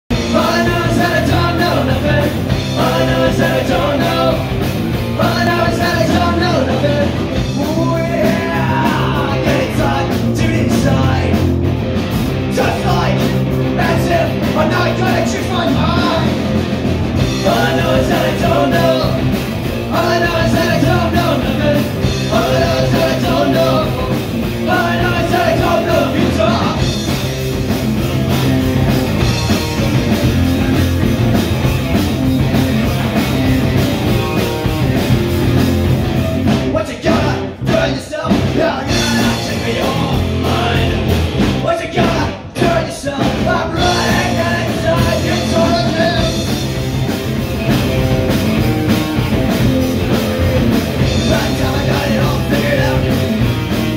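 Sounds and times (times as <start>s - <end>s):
drums: 0.0s - 53.9s
electric guitars: 0.1s - 53.9s
person singing: 0.2s - 4.6s, 5.2s - 11.5s, 17.4s - 26.9s, 36.7s - 46.6s, 51.0s - 53.4s.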